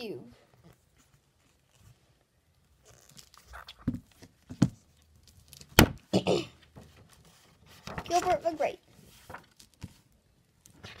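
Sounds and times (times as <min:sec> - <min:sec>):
book pages rustling: 0:00.4 - 0:05.8, 0:06.6 - 0:11.0
book knocking: 0:03.8 - 0:04.8.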